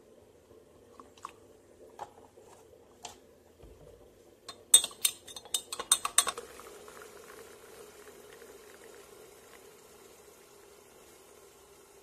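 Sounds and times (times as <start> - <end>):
hot water pouring into glass: 4.5 - 12.0
spoon clinking against glass: 4.7 - 6.4.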